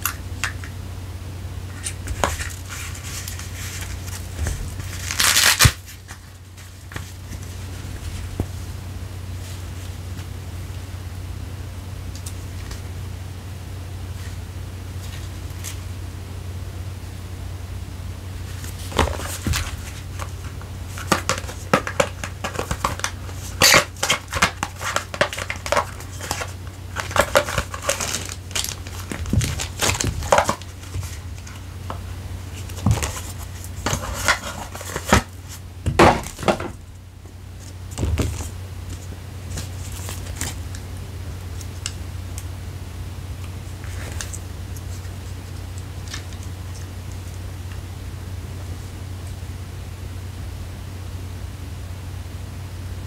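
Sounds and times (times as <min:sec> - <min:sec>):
low steady hum: 0:00.0 - 0:53.0.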